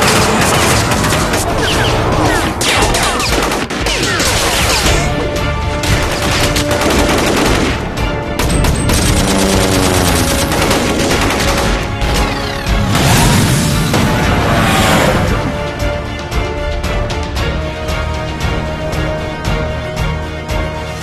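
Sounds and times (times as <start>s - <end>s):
dense musical score: 0.0s - 21.0s
machine-gun fire: 5.8s - 13.5s.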